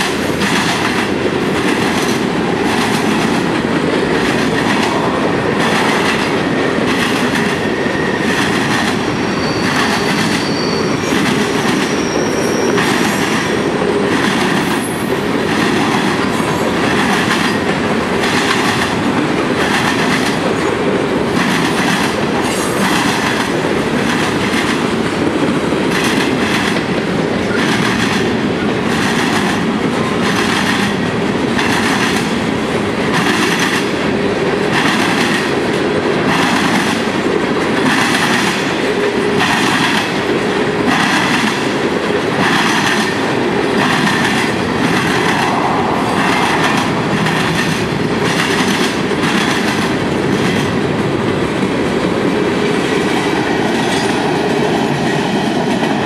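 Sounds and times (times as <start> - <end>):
steel wheels rumbling on rail: 0.0 - 56.0
high-pitched wheel squeals: 9.1 - 11.2, 11.8 - 13.0.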